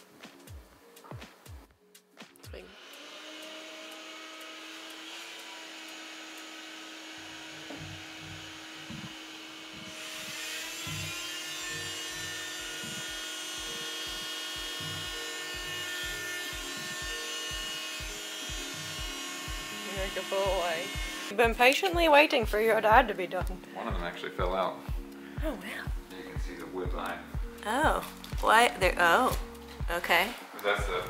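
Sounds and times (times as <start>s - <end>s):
multi-tool whining: 2.6s - 21.3s.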